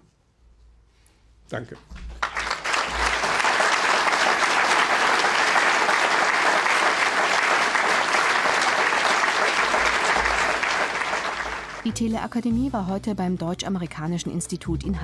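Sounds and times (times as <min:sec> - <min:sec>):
audience applauding: 0:02.1 - 0:11.9.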